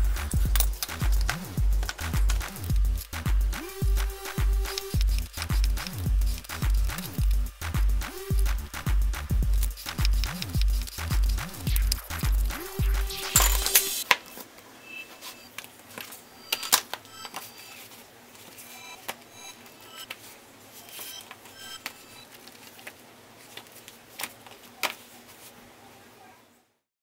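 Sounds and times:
electronic music with heavy beat: 0:00.0 - 0:14.0
paper rustling: 0:22.3 - 0:25.6.

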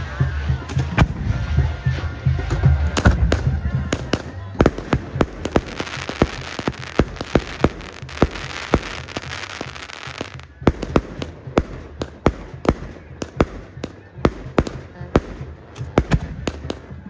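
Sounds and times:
firework bangs: 0:03.0 - 0:17.0
firework hiss and crackle: 0:04.6 - 0:12.4.

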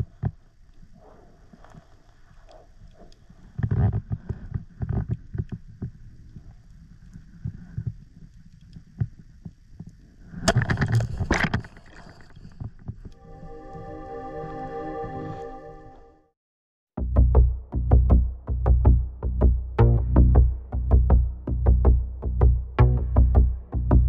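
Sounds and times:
music: 0:13.2 - 0:16.4, 0:17.0 - 0:24.0.

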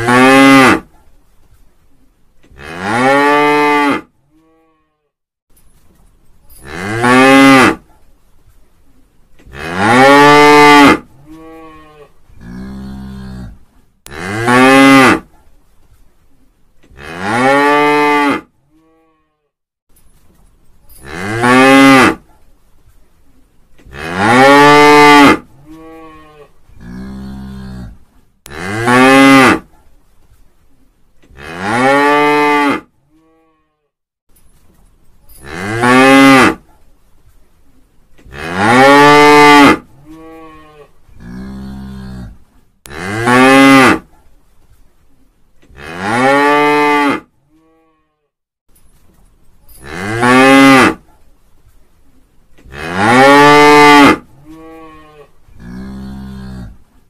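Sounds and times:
cow mooing: 0:52.7 - 0:56.8.

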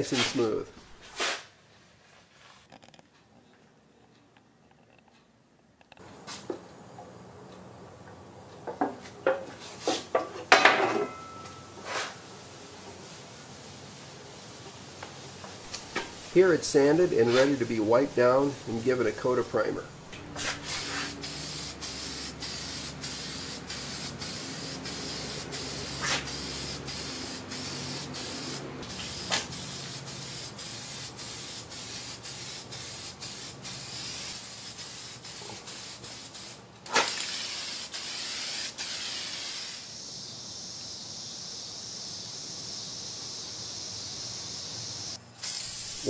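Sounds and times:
aerosol spray can hissing: 0:20.3 - 0:46.0
spray can clicks: 0:36.9 - 0:39.8.

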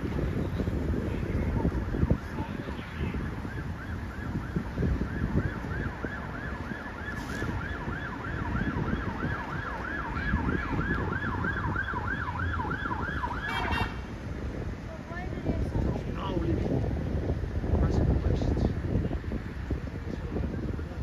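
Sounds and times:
wind rumble on microphone: 0:00.0 - 0:21.0
police siren yelping: 0:01.9 - 0:14.0.

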